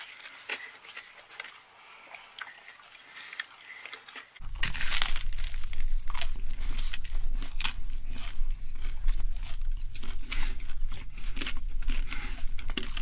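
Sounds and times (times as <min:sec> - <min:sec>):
soft chewing: 0:00.0 - 0:13.0
loud crunches biting crust: 0:04.4 - 0:13.0
low steady hum: 0:04.4 - 0:13.0.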